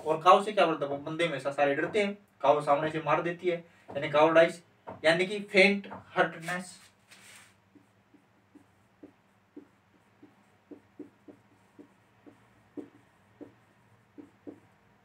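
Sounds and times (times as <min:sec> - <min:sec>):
marker writing on whiteboard: 0:01.6 - 0:02.2, 0:02.8 - 0:15.0.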